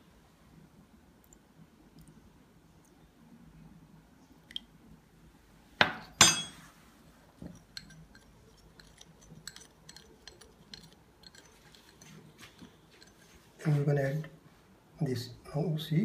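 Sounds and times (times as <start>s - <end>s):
spoon clinking against ceramic bowl: 6.2s - 6.6s, 7.4s - 13.4s
plastic spoon stirring in bowl: 7.4s - 13.9s.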